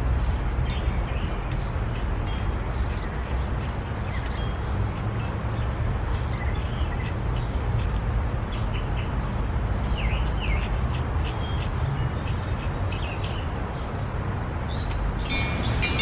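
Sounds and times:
small birds chirping: 0.1s - 16.0s
wind chime ringing: 15.2s - 16.0s.

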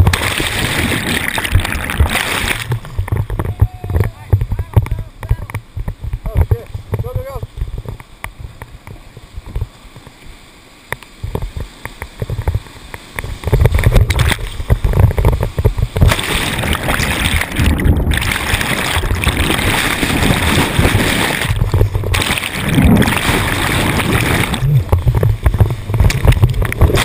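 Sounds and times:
whitewater rapids rushing: 15.9s - 27.0s.

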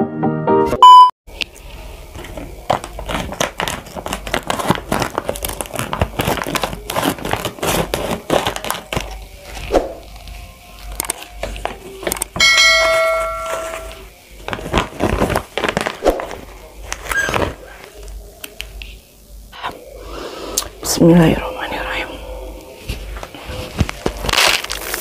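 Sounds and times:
plastic bag crinkling: 1.5s - 12.4s, 13.5s - 18.0s, 23.3s - 25.0s
scissors cutting plastic: 2.2s - 12.4s
bell chime: 12.4s - 14.1s.

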